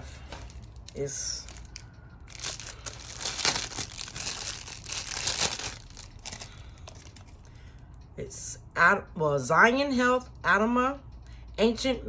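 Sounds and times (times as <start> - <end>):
plastic wrapping crinkling: 0.2 - 7.4.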